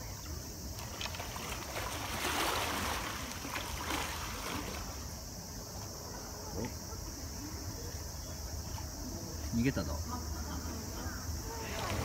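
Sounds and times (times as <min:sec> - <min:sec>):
water sloshing and churning: 0:00.2 - 0:06.6, 0:11.4 - 0:12.0.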